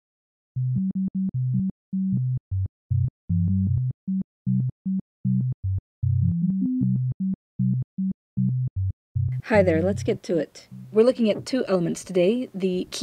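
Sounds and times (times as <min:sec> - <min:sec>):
synthesizer playing clipped low notes: 0:00.6 - 0:10.1.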